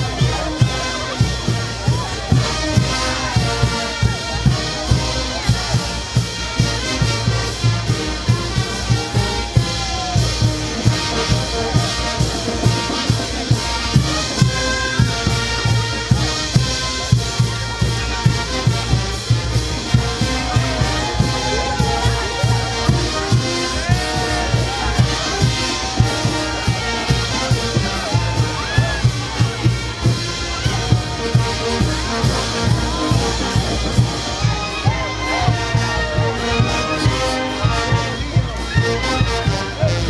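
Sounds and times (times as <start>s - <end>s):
brass band playing: 0.0s - 40.0s
steady drum beat: 0.0s - 40.0s.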